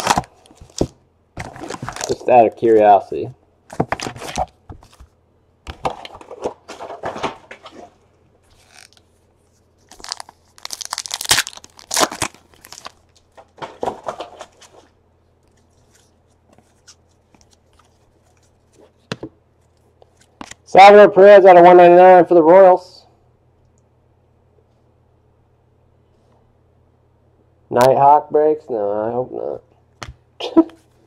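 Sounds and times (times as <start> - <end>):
foil wrappers tearing and crinkling: 0.0 - 2.4, 8.6 - 9.0, 9.8 - 14.7
cards being handled: 8.5 - 9.1, 15.5 - 20.6.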